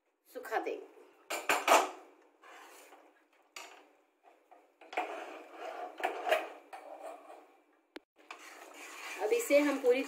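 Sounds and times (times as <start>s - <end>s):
metal spoon stirring minced meat: 8.2s - 10.0s.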